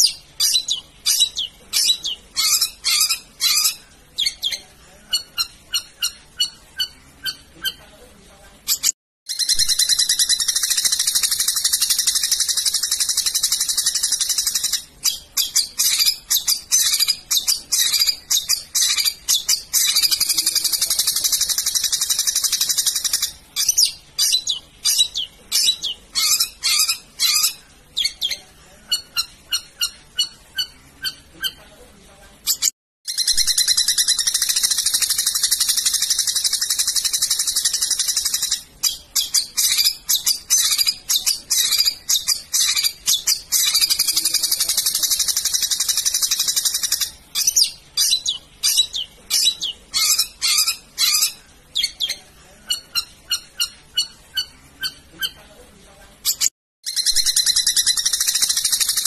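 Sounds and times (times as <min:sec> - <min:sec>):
shrike singing shrill chatter: 0:08.7 - 0:31.6, 0:32.5 - 0:55.4, 0:56.3 - 0:59.0.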